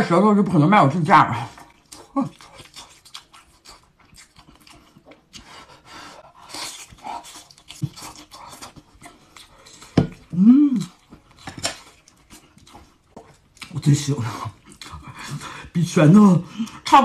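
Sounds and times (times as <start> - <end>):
wet chewing smacks: 1.5 - 5.8, 6.4 - 15.7
person humming mmm: 10.2 - 11.0.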